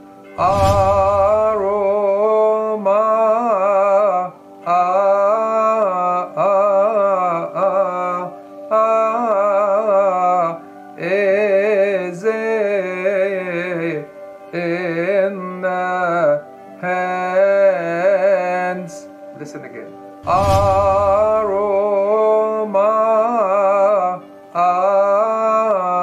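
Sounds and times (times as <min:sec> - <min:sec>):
steady low drone: 0:00.4 - 0:02.4, 0:20.2 - 0:22.0.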